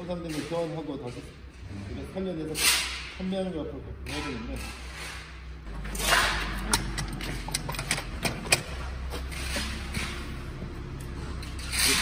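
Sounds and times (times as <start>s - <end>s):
light metallic clicks and knocks: 6.4s - 10.2s.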